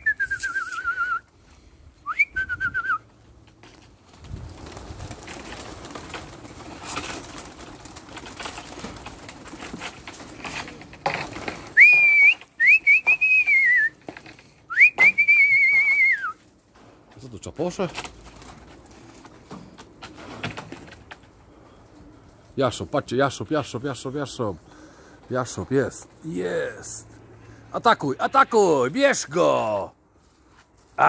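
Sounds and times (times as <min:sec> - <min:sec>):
person whistling trills: 0:00.0 - 0:01.3, 0:02.0 - 0:03.0, 0:11.8 - 0:13.9, 0:14.7 - 0:16.4.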